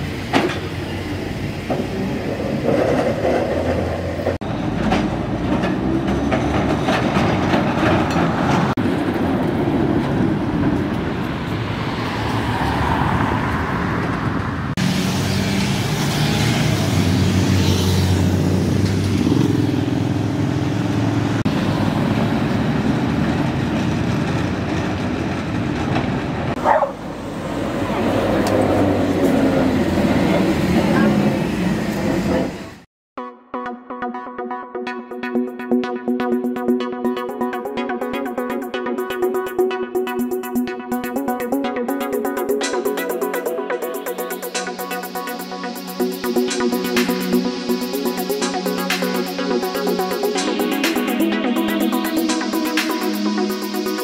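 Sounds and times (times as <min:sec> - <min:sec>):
tram passing on rails: 0:00.0 - 0:32.9, 0:37.4 - 0:54.0.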